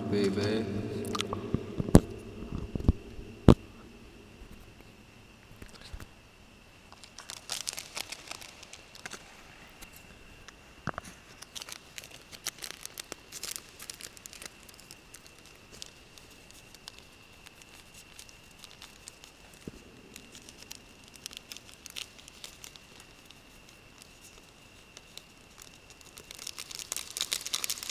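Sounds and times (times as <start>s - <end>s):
faint high whine: 0.0s - 27.0s
plastic bag crinkling: 6.9s - 9.4s, 11.2s - 27.9s.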